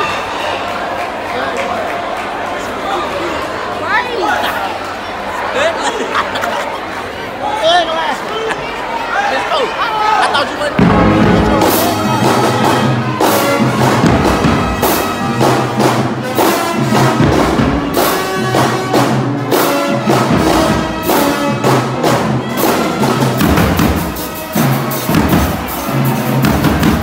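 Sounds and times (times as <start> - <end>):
brass holding low notes: 10.8 - 23.2
bass drum and snare beat: 10.8 - 27.0.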